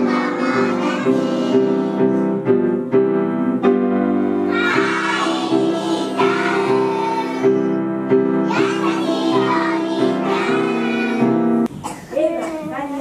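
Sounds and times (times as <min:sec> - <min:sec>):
children singing: 0:00.0 - 0:02.2, 0:04.5 - 0:07.8, 0:08.4 - 0:11.4
piano chords: 0:00.0 - 0:12.0.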